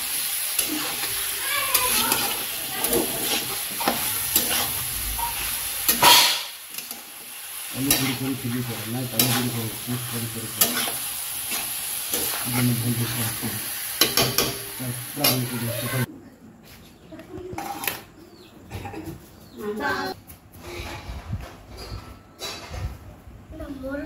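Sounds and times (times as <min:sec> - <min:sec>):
mushrooms sizzling in pan: 0:00.0 - 0:16.1
metal spatula scraping pan: 0:00.5 - 0:07.1, 0:07.8 - 0:13.2.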